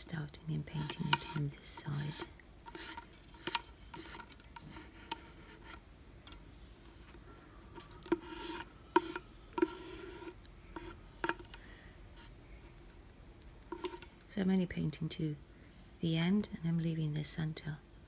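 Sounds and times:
paintbrush scratching plastic: 0.7s - 5.8s, 8.0s - 11.5s, 13.7s - 14.1s.

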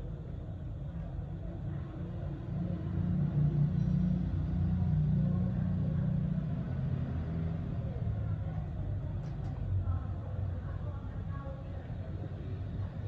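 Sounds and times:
low background rumble: 7.8s - 13.0s
faint small clicks: 9.2s - 9.6s.

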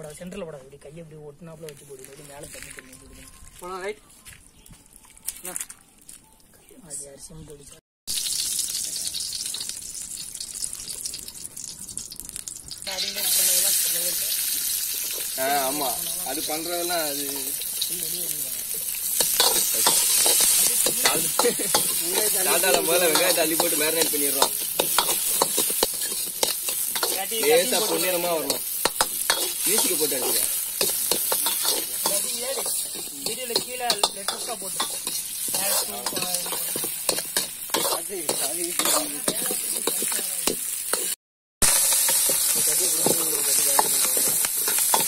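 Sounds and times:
onions sizzling in oil: 8.1s - 45.0s
ladle scraping and clinking on pan: 19.2s - 40.2s.

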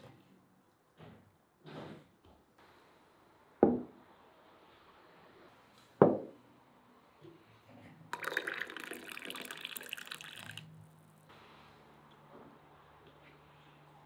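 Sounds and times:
tea pouring into a glass cup: 8.2s - 10.8s.

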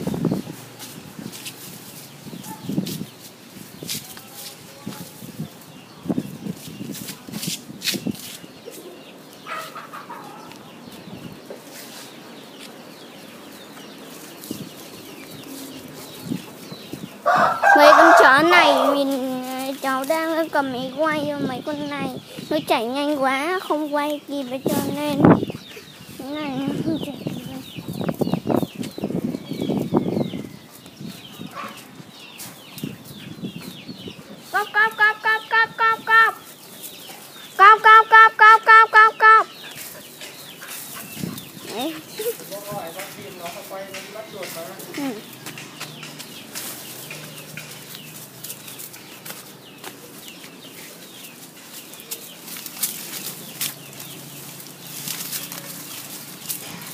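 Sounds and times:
rustling in undergrowth: 0.0s - 33.4s, 39.5s - 56.9s
chicks peeping: 0.0s - 56.9s
rustling and snapping plants: 2.8s - 5.2s, 39.7s - 56.9s
chicken clucking: 8.7s - 10.7s.

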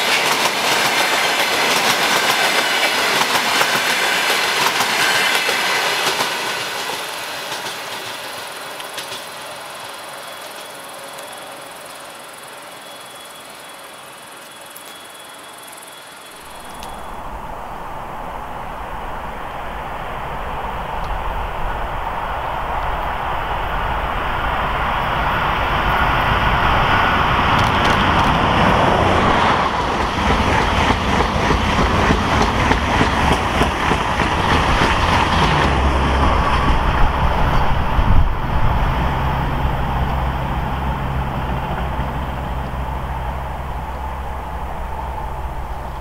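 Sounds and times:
train wheels rushing on rails: 0.0s - 46.0s
steady low hum: 16.3s - 25.8s, 35.7s - 46.0s.

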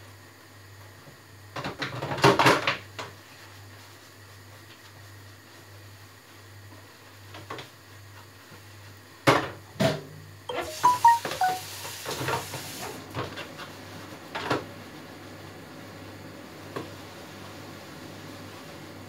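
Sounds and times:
brief ringing tones: 10.5s - 11.9s.

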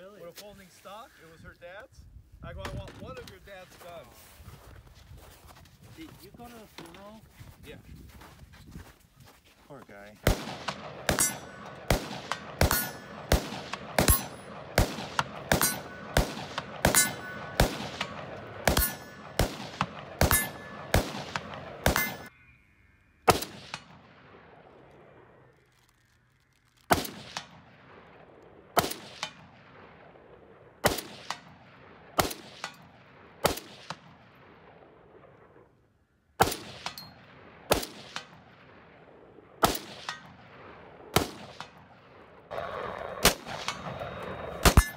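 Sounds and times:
rapid gunshots: 10.2s - 22.3s, 42.5s - 44.0s
rifle single shots: 10.2s - 22.3s, 23.3s - 25.4s, 26.9s - 35.6s, 36.4s - 44.9s
metallic ring: 11.2s - 11.8s, 15.6s - 16.2s, 16.9s - 17.6s, 18.8s - 19.3s, 20.3s - 21.0s, 21.9s - 23.3s, 44.6s - 44.9s.

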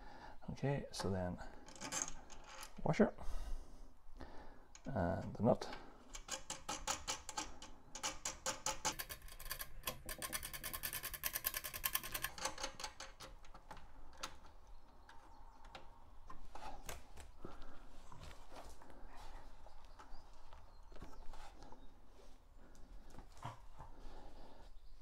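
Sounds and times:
ratchet clicking: 6.2s - 13.2s.

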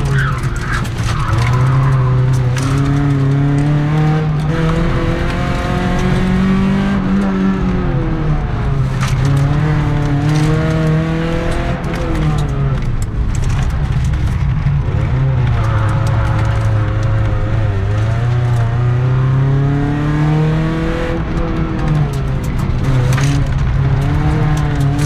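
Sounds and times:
car engine revving hard: 0.0s - 12.5s, 15.1s - 22.1s.

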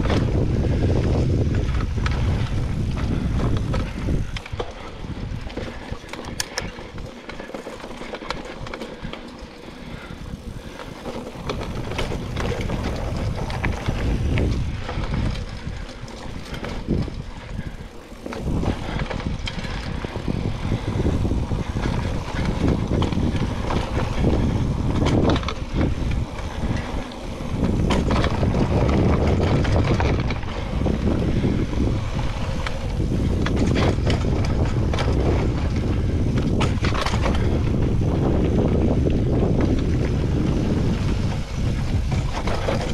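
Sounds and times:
bike clicks and rattles: 0.0s - 42.9s
bike tyre noise and rumble: 0.0s - 42.9s.

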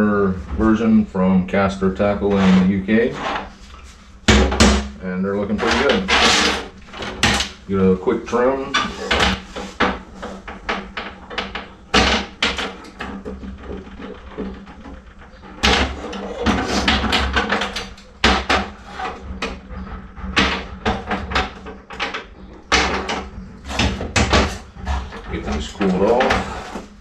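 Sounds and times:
steady low hum: 0.0s - 27.0s
sharp knocks: 4.3s - 5.0s, 8.7s - 26.6s.

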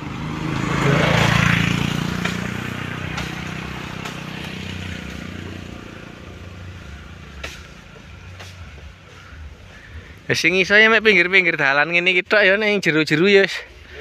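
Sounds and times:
motorcycle passing by: 0.0s - 10.3s
sharp knocks: 2.0s - 4.8s.

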